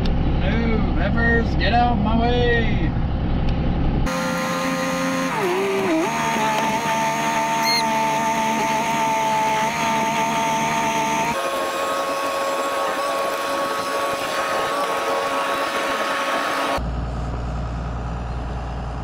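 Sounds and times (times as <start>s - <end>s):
mechanical whine: 7.4s - 8.0s.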